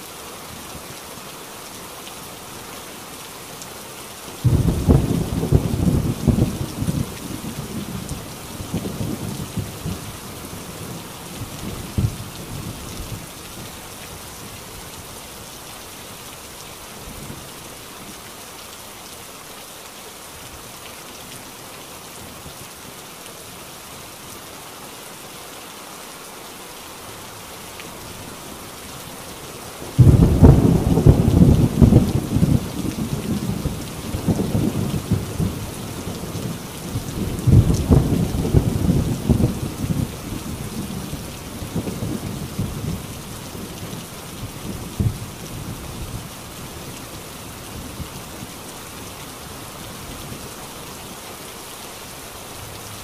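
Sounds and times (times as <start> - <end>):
heavy rain on a tin roof: 0.0 - 53.0
loud thunderclap: 4.4 - 7.1, 30.0 - 33.6, 37.4 - 40.1
low thunder rumble: 4.4 - 12.8, 30.0 - 43.7.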